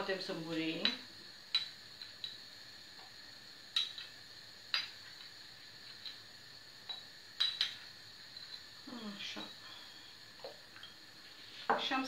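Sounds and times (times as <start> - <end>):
metal spoon clinking on glass: 6.9 - 7.8.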